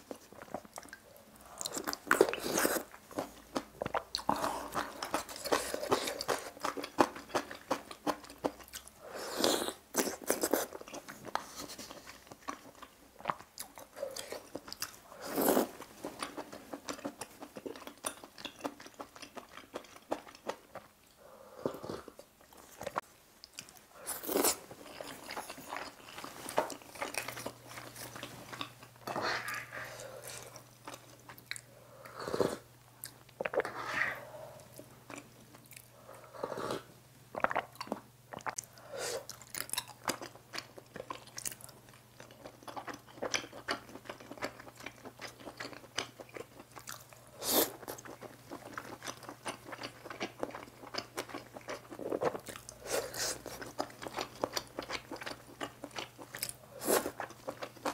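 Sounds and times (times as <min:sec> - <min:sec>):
chewing with wet mouth clicks: 0:00.1 - 0:09.0, 0:10.0 - 0:15.0, 0:16.1 - 0:21.2, 0:37.4 - 0:38.7, 0:39.3 - 0:47.2, 0:47.8 - 0:52.8, 0:53.4 - 0:57.9.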